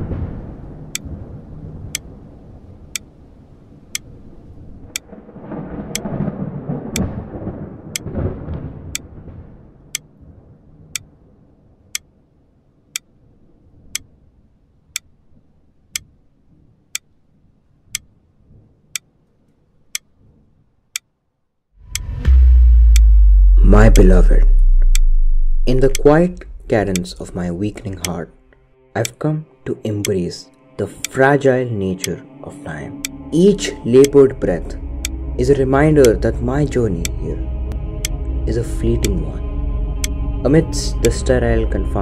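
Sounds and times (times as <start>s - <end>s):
deep rumble: 0.0s - 9.9s, 21.8s - 28.7s, 32.0s - 42.0s
clock ticking: 7.9s - 8.1s, 21.9s - 29.2s, 30.0s - 30.2s, 30.8s - 31.4s, 32.0s - 42.0s.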